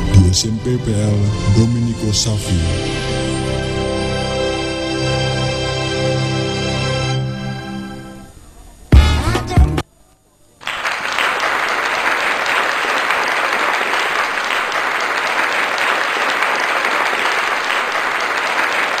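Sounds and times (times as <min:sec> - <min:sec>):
music: 0:00.0 - 0:09.9
crowd applause: 0:10.6 - 0:19.0.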